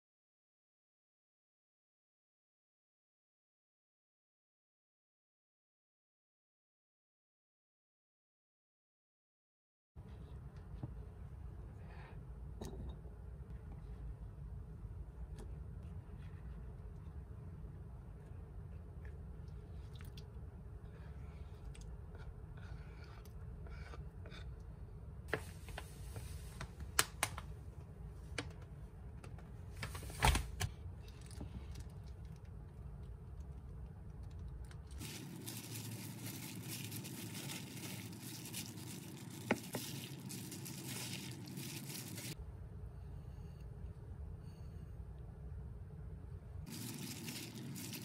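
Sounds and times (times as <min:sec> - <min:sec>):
gloved hand squishing food: 0:33.0 - 0:42.4, 0:46.6 - 0:48.0.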